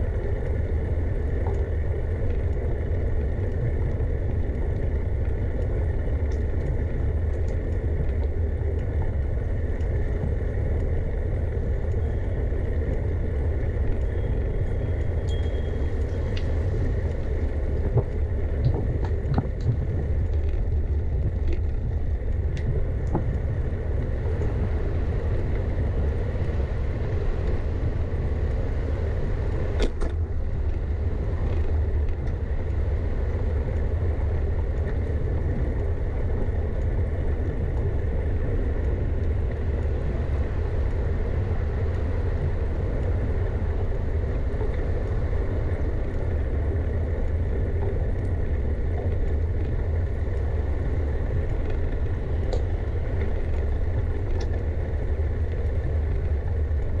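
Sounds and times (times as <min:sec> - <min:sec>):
bicycle ride rumble: 0:00.0 - 0:57.0.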